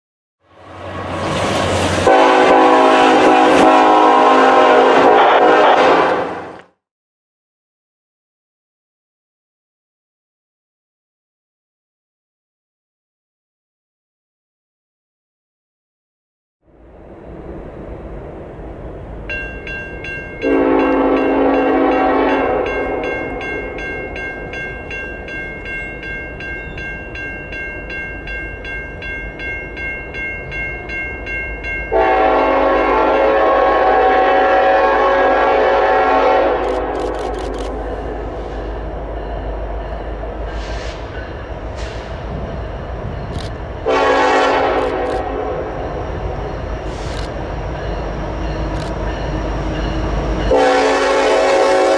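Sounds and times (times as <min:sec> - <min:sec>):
train rumble: 0:00.6 - 0:06.7, 0:16.7 - 0:51.9
train horn blasts: 0:02.0 - 0:06.6, 0:20.4 - 0:23.7, 0:31.9 - 0:37.3, 0:43.8 - 0:45.8, 0:49.1 - 0:51.9
crossing bell ringing: 0:19.2 - 0:33.7, 0:37.0 - 0:51.6.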